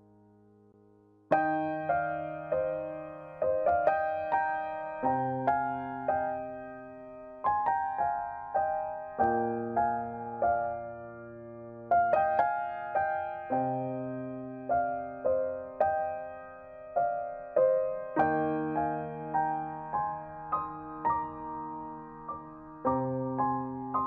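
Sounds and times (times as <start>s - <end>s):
gentle solo piano: 0.0s - 24.0s.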